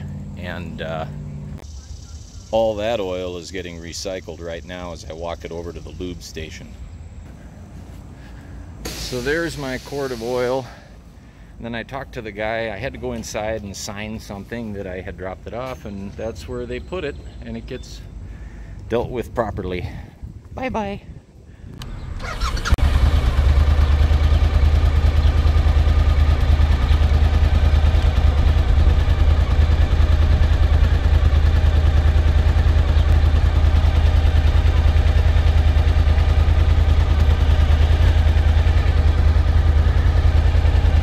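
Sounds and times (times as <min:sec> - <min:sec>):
motorcycle engine idling: 0:00.0 - 0:06.1, 0:21.8 - 0:41.0.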